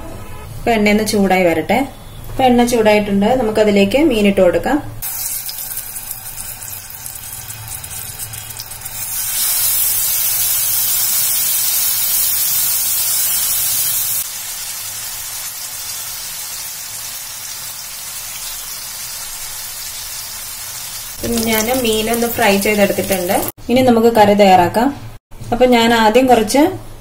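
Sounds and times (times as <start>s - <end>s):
fish sizzling in oil: 5.0s - 23.6s
loud hiss from pan: 5.0s - 23.6s.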